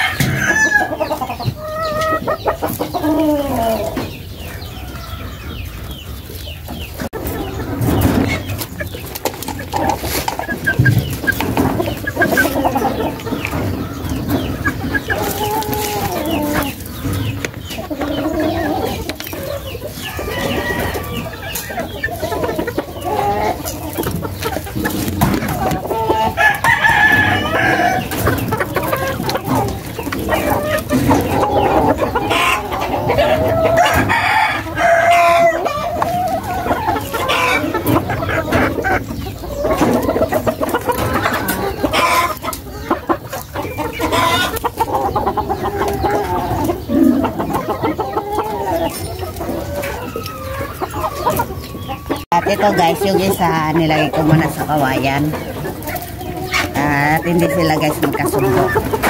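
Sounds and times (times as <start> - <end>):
roosters clucking and crowing: 0.0 - 59.0.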